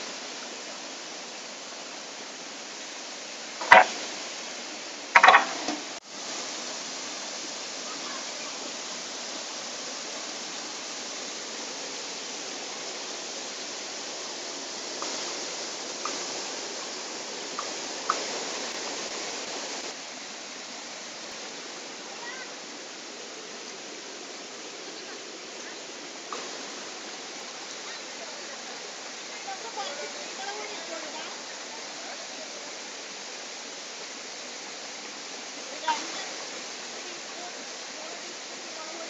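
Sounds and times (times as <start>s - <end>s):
stream rushing over rocks: 0.0s - 39.0s
sharp knocks: 3.6s - 4.0s, 5.2s - 5.8s.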